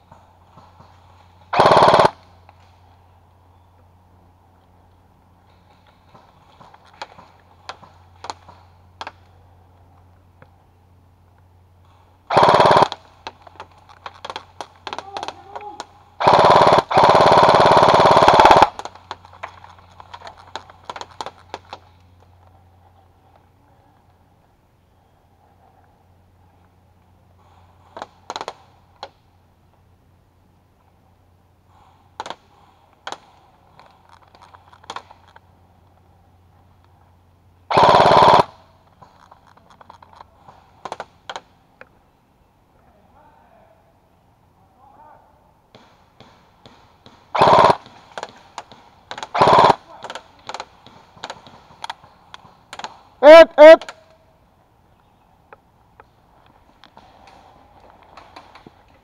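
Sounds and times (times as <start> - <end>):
airsoft rifle automatic burst: 1.5 - 2.2, 12.3 - 13.2, 16.2 - 19.0, 37.7 - 38.7, 47.3 - 48.4, 49.1 - 51.4
airsoft rifle bursts: 1.5 - 2.4, 12.3 - 22.0, 37.7 - 41.5, 47.3 - 54.2.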